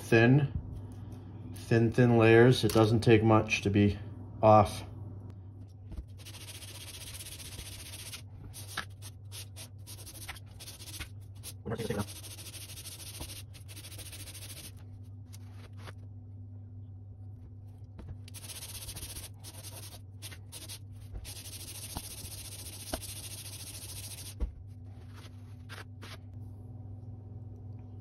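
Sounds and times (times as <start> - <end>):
metal rasping on sandpaper: 18.3 - 24.3.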